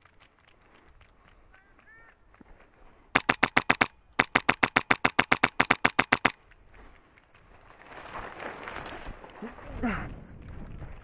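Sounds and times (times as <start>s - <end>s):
airsoft rifle bursts: 3.2s - 6.4s.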